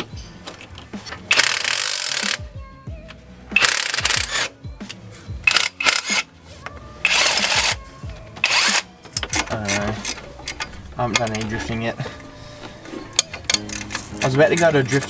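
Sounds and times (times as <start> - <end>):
quiet background music: 0.0 - 15.0
cordless drill spinning: 7.0 - 7.8, 8.4 - 8.9.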